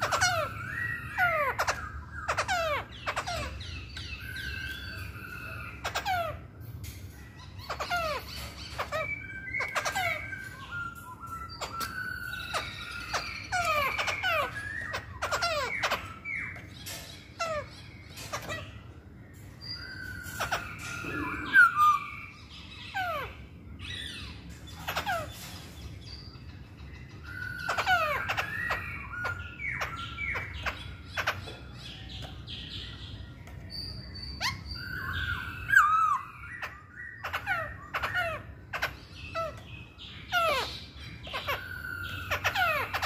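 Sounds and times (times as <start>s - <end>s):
bird chirping and whistling: 0.0s - 6.4s, 7.3s - 43.0s.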